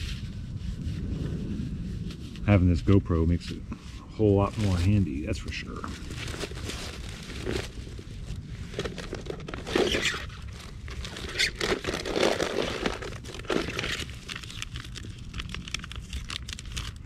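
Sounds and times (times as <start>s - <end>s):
plastic wrapper crinkling: 4.3s - 17.0s
fabric and gear rustling: 4.4s - 14.2s
small clicks and scrapes: 8.7s - 17.0s.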